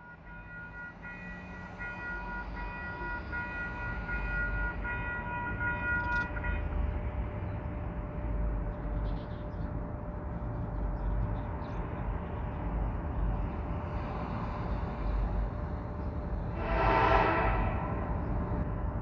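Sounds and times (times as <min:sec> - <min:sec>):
locomotive horn blasts: 0:00.0 - 0:06.8, 0:16.5 - 0:18.6
low locomotive rumble: 0:00.0 - 0:19.0.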